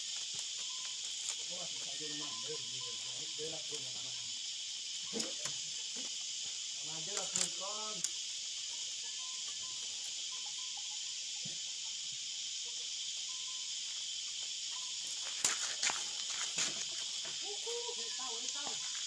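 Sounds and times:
bamboo strips clicking and rustling: 0.0 - 3.8, 5.0 - 6.2, 7.0 - 8.2, 14.3 - 19.0
high insect chorus: 0.0 - 19.0.

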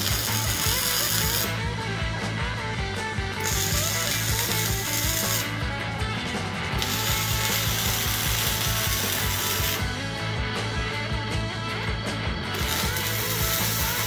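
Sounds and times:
welding arc crackling: 0.0 - 1.7, 3.4 - 5.7, 6.6 - 10.0, 12.5 - 14.0
background music with steady beat: 0.0 - 14.0.

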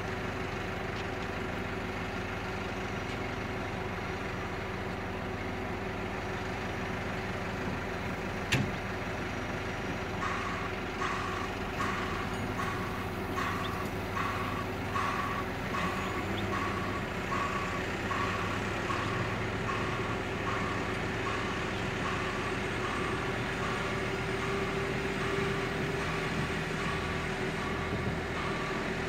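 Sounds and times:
diesel engine idling: 0.0 - 29.0
reversing alarm beeping: 9.2 - 29.0.

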